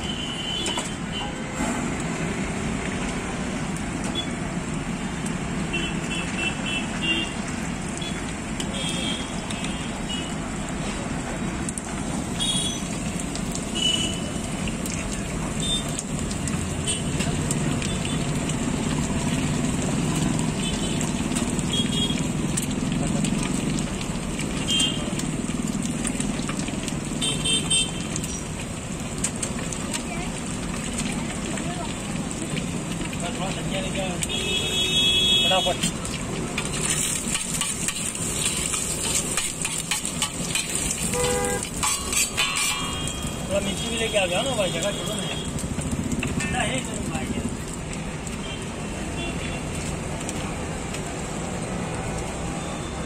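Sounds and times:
traffic rumble: 0.0s - 53.0s
spatula clinking on griddle: 36.6s - 43.6s.

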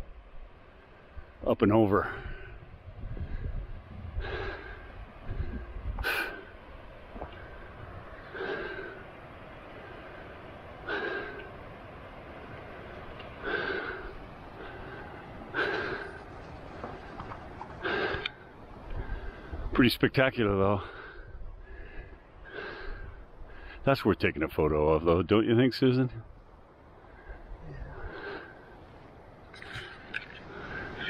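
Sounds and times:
faint steady hiss: 0.0s - 31.0s
wind rumbling on microphone: 2.1s - 19.9s
person breathing: 2.2s - 6.6s, 7.2s - 9.1s, 9.7s - 11.6s, 12.8s - 19.7s, 20.8s - 23.8s, 26.9s - 31.0s.

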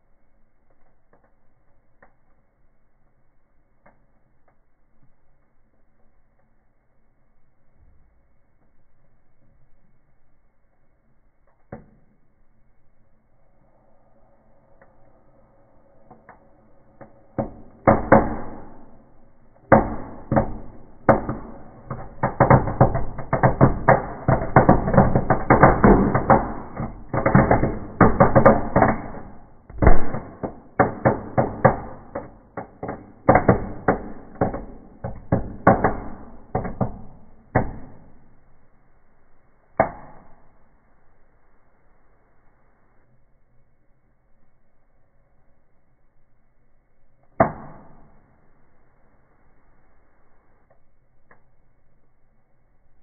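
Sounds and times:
fireworks crackling and popping: 13.4s - 38.6s.

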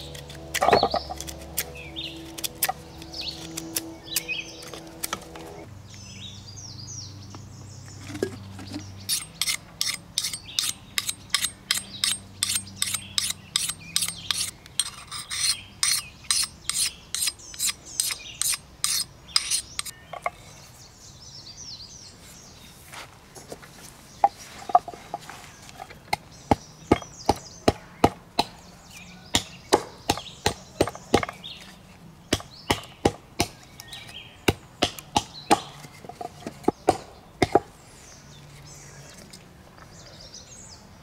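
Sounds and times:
birds chirping: 0.0s - 23.0s, 23.6s - 41.0s
knife scraping wood: 8.0s - 20.6s.

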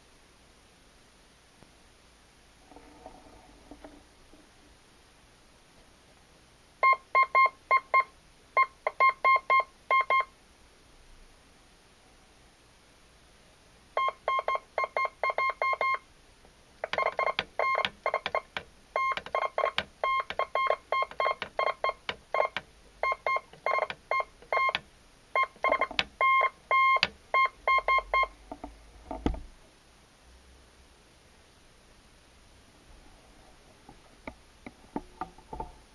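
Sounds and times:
morse code beeps: 14.0s - 16.0s, 17.0s - 24.8s, 25.4s - 28.3s.

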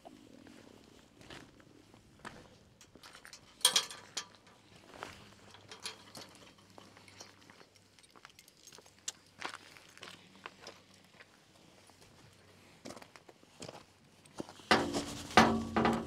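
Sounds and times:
metal gate clinking and knocking: 3.1s - 7.5s, 14.7s - 16.0s.

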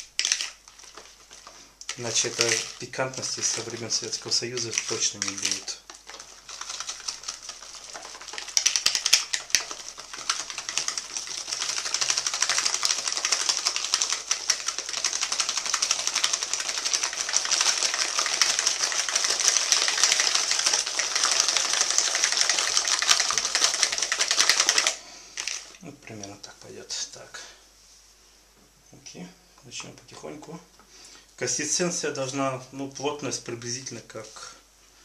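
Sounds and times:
whisk rattling against bowl: 0.0s - 25.7s.

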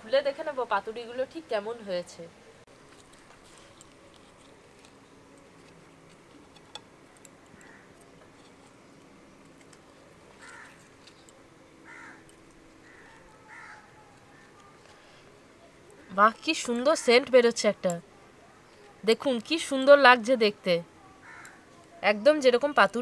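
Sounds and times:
bird calling: 7.5s - 8.0s, 10.4s - 14.8s.

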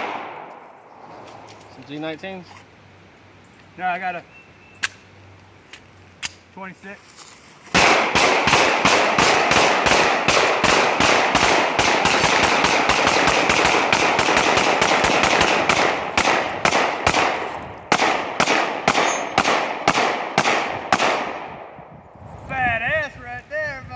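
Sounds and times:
rapid pistol fire: 7.8s - 21.6s.

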